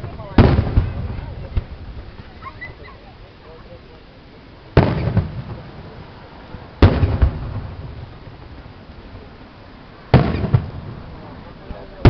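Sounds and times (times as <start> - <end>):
firework shells bursting: 4.7 - 6.0, 6.8 - 9.1, 10.1 - 11.9.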